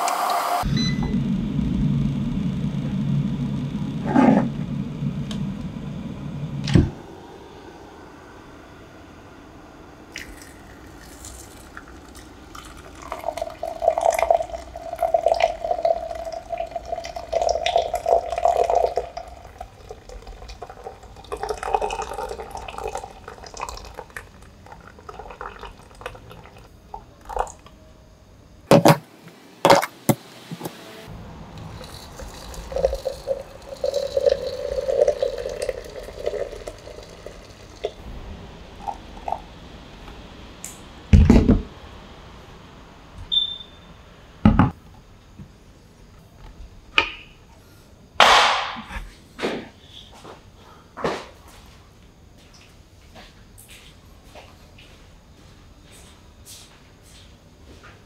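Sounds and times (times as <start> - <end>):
hot water pouring from kettle: 10.1 - 27.6, 31.6 - 38.0, 38.7 - 39.5.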